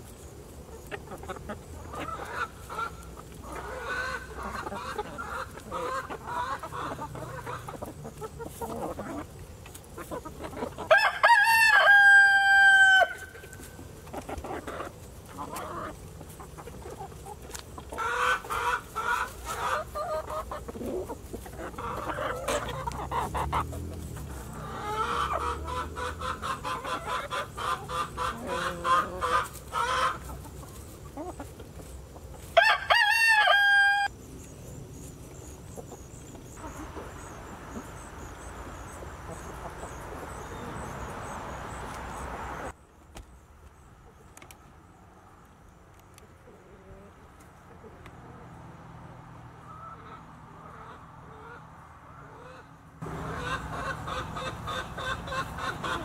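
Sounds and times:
hens clucking: 0.0 - 56.0
rooster crowing: 10.9 - 13.4, 32.6 - 34.1.

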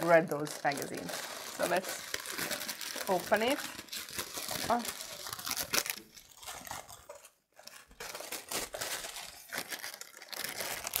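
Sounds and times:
tissue paper crinkling: 0.0 - 11.0.

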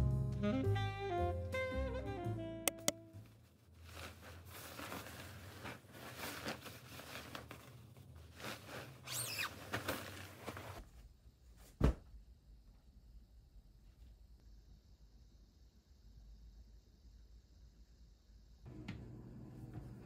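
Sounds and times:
bedding rustling and swishing: 3.6 - 10.9.

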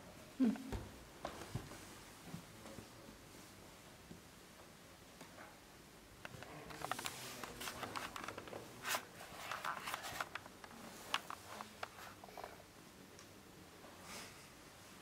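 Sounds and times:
clothing and objects rustling: 0.5 - 4.2, 6.3 - 12.7.

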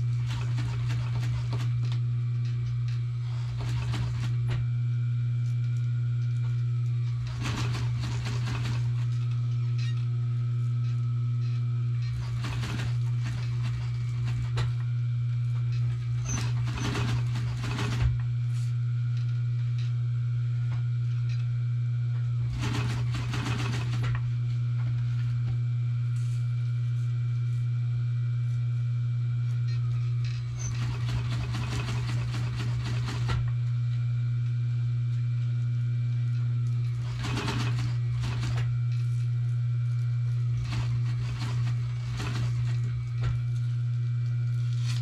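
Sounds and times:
sewing machine stitching: 0.0 - 2.0, 2.6 - 4.7, 7.0 - 10.0, 11.4 - 14.9, 15.7 - 18.2, 22.4 - 24.3, 29.7 - 33.6, 36.8 - 39.0, 40.4 - 43.7
low electric motor hum: 0.0 - 45.0.

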